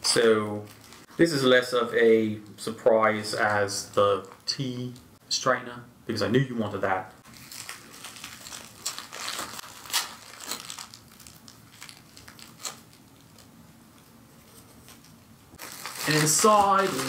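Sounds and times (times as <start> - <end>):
packaging crinkling: 7.2 - 17.0.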